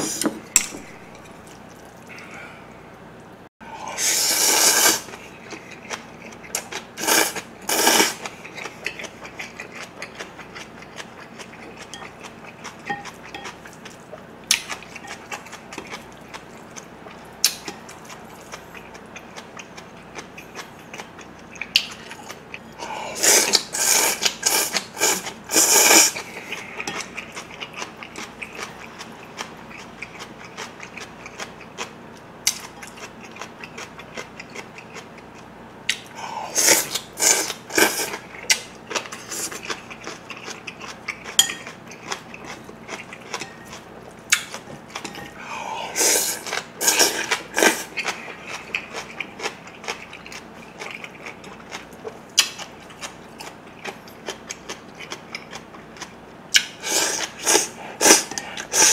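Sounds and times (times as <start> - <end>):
loud noodle slurping: 4.0 - 5.1, 7.0 - 8.2, 23.2 - 26.3, 36.6 - 38.2, 45.9 - 47.9, 56.8 - 58.9.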